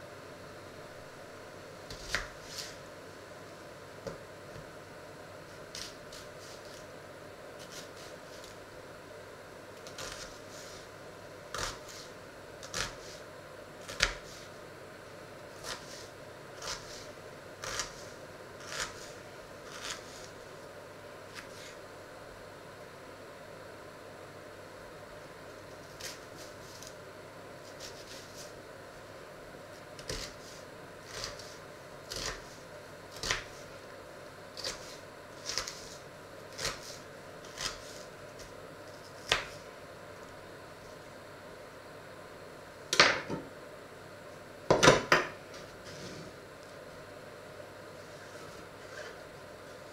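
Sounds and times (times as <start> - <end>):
knife cutting onion on board: 1.9 - 2.8, 5.6 - 6.9, 7.6 - 8.6, 9.8 - 14.5, 15.5 - 20.4, 21.3 - 21.8, 25.8 - 27.0, 27.6 - 28.6, 29.9 - 33.7, 34.6 - 39.7.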